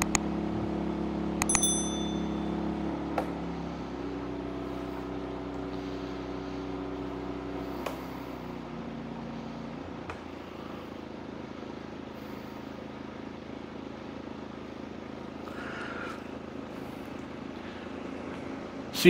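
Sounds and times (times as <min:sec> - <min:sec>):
generator engine running: 0:00.0 - 0:19.0
switch click: 0:01.4 - 0:02.0.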